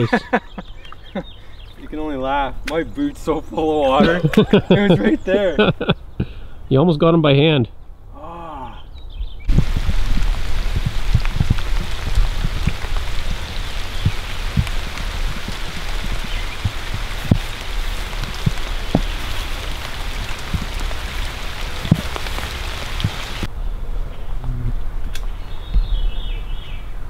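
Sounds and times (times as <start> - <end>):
heavy raindrops tapping: 9.5 - 23.5
steady rain hiss on water: 9.5 - 23.5.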